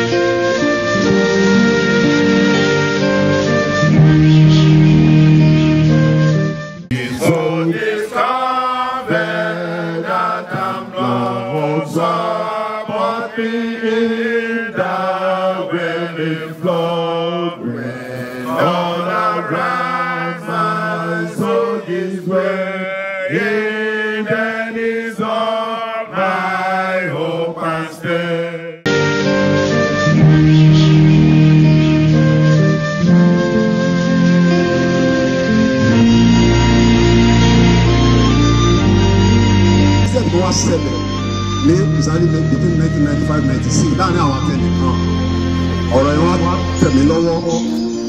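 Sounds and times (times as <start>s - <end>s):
men chanting into microphones: 6.9s - 28.9s.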